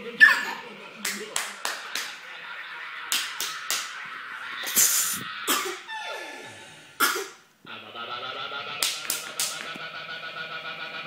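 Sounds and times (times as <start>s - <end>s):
hands slapping on tiled floor: 1.0s - 2.2s, 3.1s - 4.1s, 8.8s - 9.8s.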